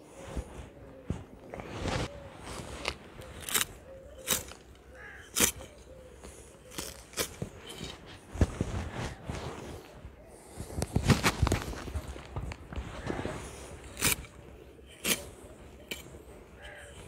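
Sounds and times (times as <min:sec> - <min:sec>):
snips and crunches of stems: 0:02.6 - 0:08.1, 0:13.8 - 0:17.0.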